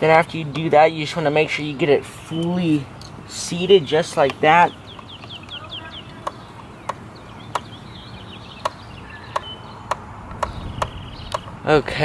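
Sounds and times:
hands clicking and tapping on engine: 0.1s - 0.9s, 3.8s - 7.9s, 8.5s - 11.6s
bird chirps: 2.1s - 11.7s.

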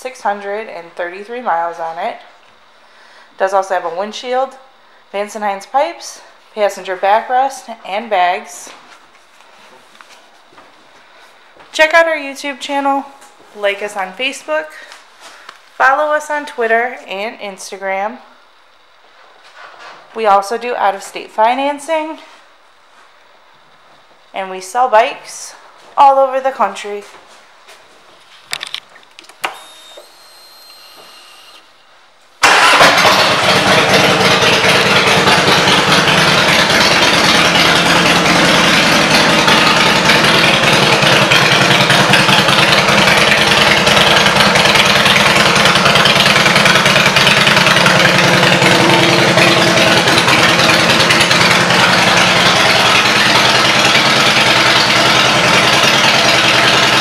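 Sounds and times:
motorcycle engine idling: 32.6s - 57.0s.

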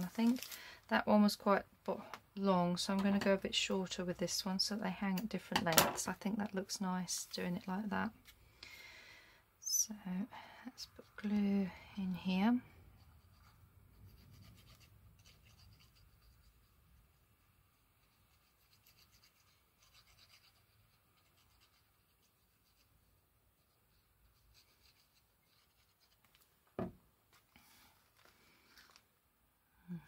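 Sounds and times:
glue spreading on paper: 13.0s - 26.3s.

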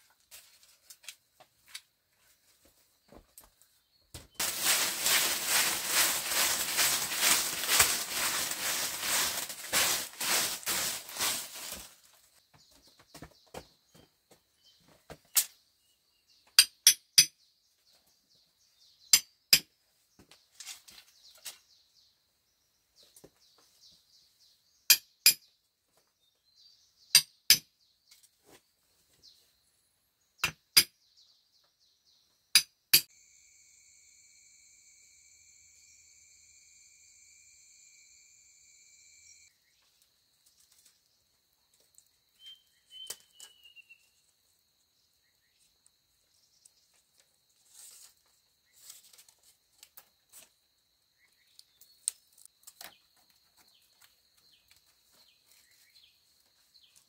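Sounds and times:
hand tool striking bamboo: 4.4s - 11.8s, 16.6s - 17.4s, 19.1s - 19.7s, 24.9s - 25.4s, 27.2s - 27.7s, 30.4s - 31.0s, 32.6s - 33.1s
bird chirp: 20.2s - 32.6s, 42.0s - 47.0s, 51.1s - 57.0s
faint insect hum: 33.1s - 57.0s.

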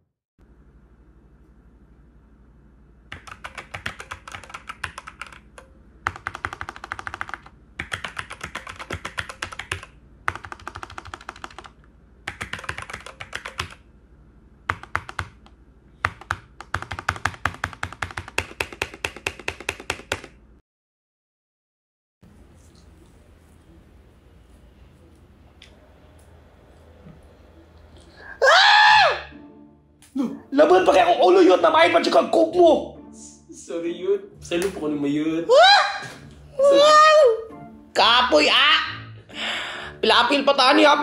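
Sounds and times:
typing on keyboard: 3.1s - 13.8s, 14.7s - 20.4s.

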